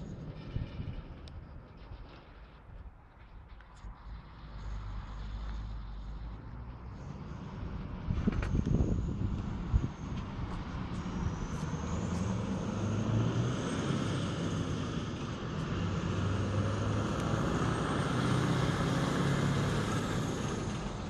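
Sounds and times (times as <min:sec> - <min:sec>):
truck diesel engine passing: 0:00.0 - 0:02.6, 0:03.8 - 0:21.0.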